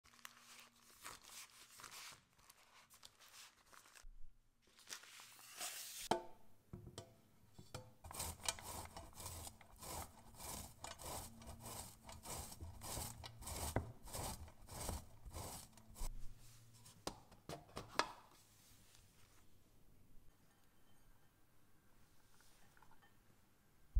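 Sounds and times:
hands rubbing pastry on wood: 8.0 - 16.1
rasping of metal grater: 8.0 - 16.1.

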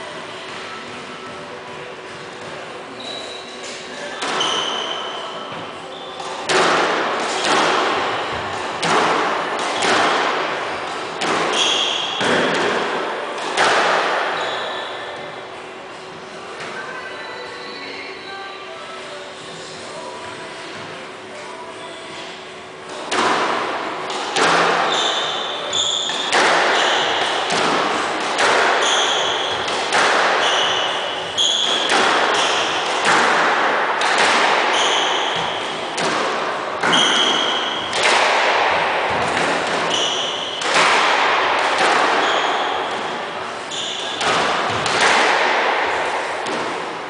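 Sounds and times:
squash ball hitting racquets and walls: 0.4 - 15.4, 22.2 - 47.0
shoes squeaking on wooden floor: 39.8 - 40.6, 42.1 - 44.2.

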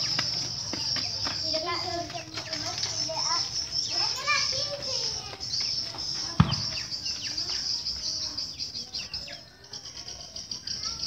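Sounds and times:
sudden thump: 6.4 - 6.8.

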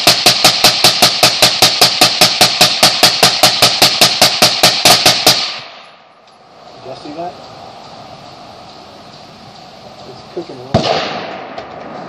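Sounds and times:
suppressed rifle rapid shots: 0.0 - 5.8, 10.7 - 11.8.

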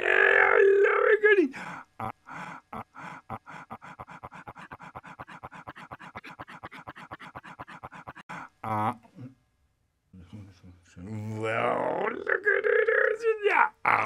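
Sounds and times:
man crying out: 0.0 - 1.5
stuttering voice loop: 2.0 - 9.1.

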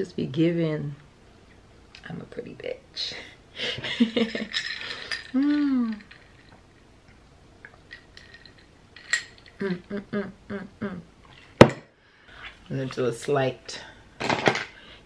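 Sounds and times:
ice cubes clinking in glass: 4.2 - 6.6, 7.8 - 9.6
person humming: 5.3 - 6.0, 9.6 - 11.1
murmured voice: 9.6 - 11.1.

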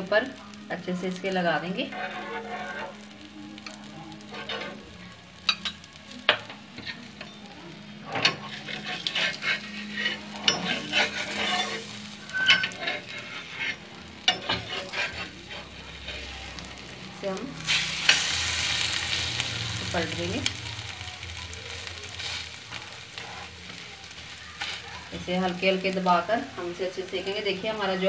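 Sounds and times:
omelette sizzling in a pan: 0.0 - 28.0
metal spoon scraping a pan: 0.8 - 7.4, 8.0 - 20.6, 21.8 - 28.0.

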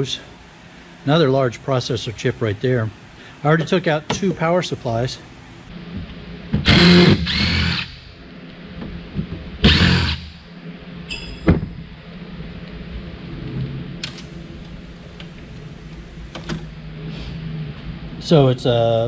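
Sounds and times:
impact driver running: 6.6 - 8.1, 9.6 - 10.4.

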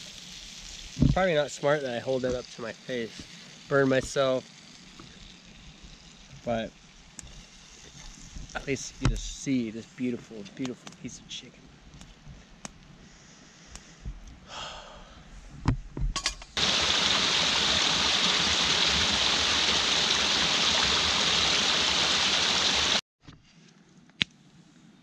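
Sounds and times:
stream splashing over rocks: 16.6 - 23.0.

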